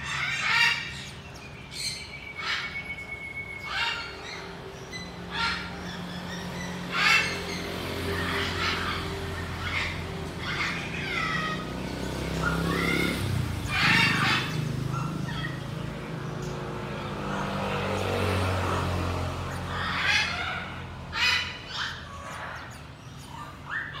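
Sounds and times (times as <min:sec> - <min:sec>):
bird chattering calls: 0:00.0 - 0:24.0
bird gliding whistles: 0:01.7 - 0:04.5.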